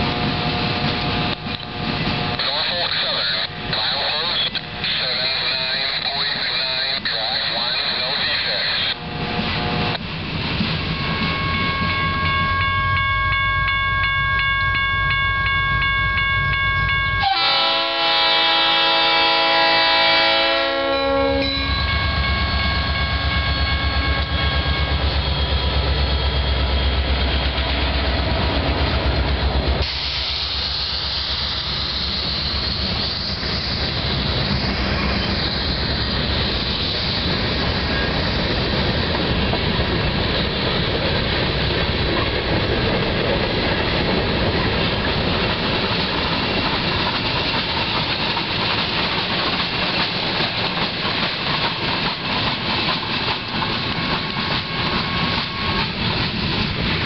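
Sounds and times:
freight cars rolling on rails: 0.0 - 13.1, 13.7 - 57.0
locomotive engine rumble: 15.8 - 57.0
train horn: 17.2 - 24.4.

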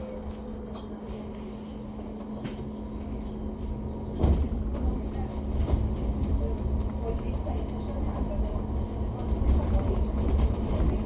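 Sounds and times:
bus drivetrain hum: 0.0 - 11.0
road rumble: 0.0 - 11.0.

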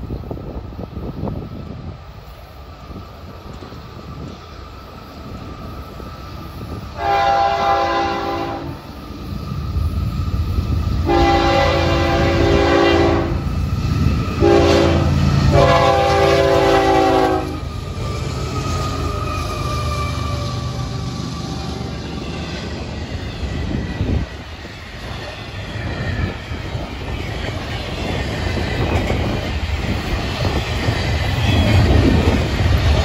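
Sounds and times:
locomotive engine rumble: 0.0 - 33.0
locomotive air horn blasts: 7.0 - 8.8, 11.0 - 13.5, 14.4 - 17.7.

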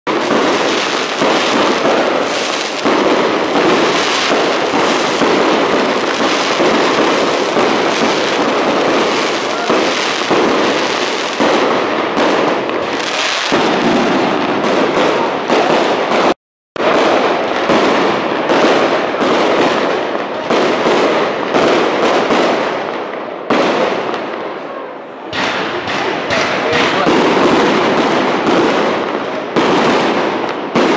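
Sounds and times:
fireworks bangs and crackles: 0.1 - 30.9.

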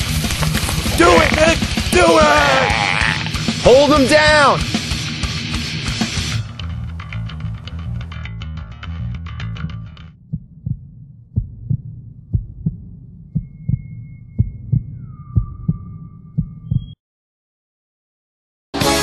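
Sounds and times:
low rumble: 9.6 - 17.0
heartbeat thumps: 10.2 - 17.0.

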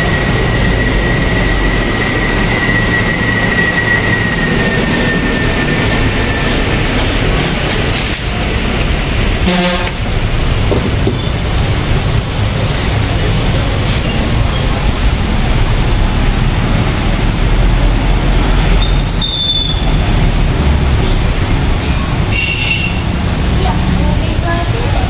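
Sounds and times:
high-pitched squeal: 0.0 - 7.6, 17.8 - 20.2
loud steady rumbling: 0.0 - 25.0
vehicle horn toot: 9.4 - 10.0, 22.3 - 23.0.

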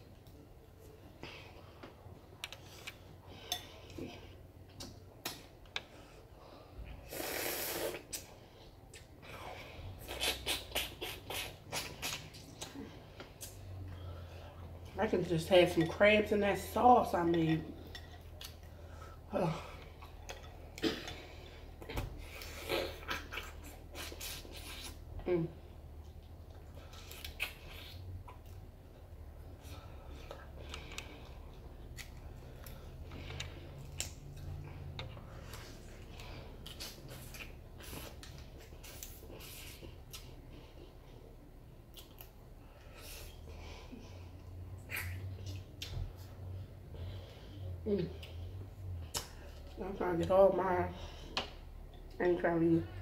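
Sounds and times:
low steady hum: 0.0 - 53.0
chewing and wet mouth sounds: 7.8 - 14.9, 17.8 - 19.1, 25.9 - 43.5
eating clicks and smacks: 10.0 - 13.6.

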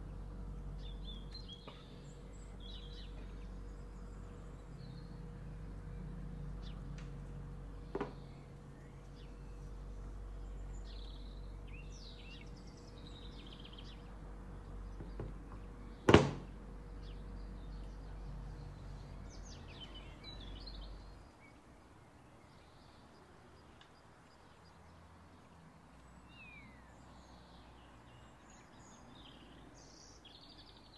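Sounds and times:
low steady rumble: 0.0 - 23.2
small birds chirping: 0.0 - 30.9
sharp knock: 16.1 - 16.5.

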